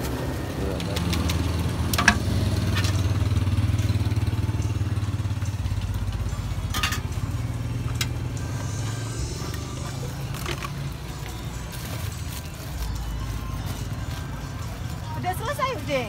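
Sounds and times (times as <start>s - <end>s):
small engine idling: 0.1s - 11.9s.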